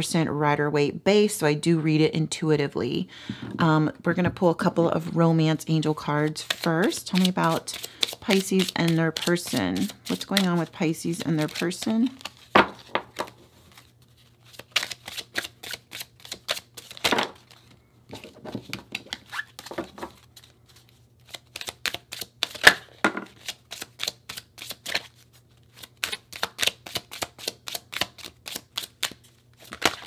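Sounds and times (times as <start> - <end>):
cards being shuffled: 6.4 - 30.0.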